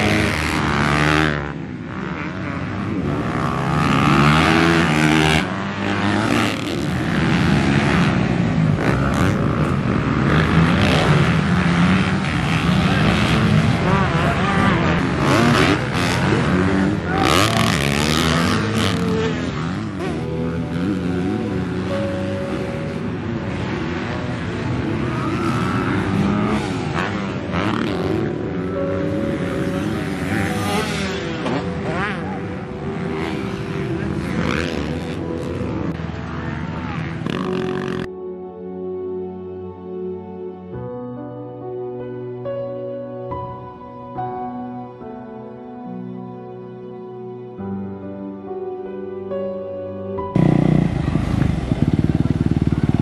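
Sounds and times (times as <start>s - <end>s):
dirt bike engines revving: 0.0s - 38.1s, 50.3s - 53.0s.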